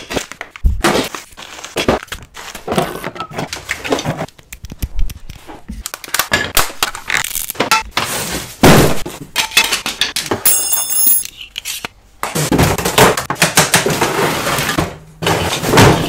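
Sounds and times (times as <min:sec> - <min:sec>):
knocks and clinks: 0:09.4 - 0:11.4.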